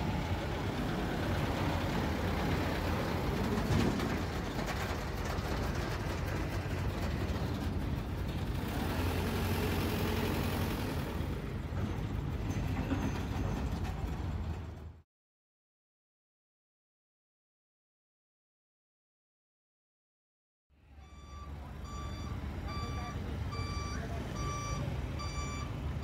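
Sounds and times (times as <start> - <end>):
truck engine humming: 0.0 - 15.0, 20.8 - 26.0.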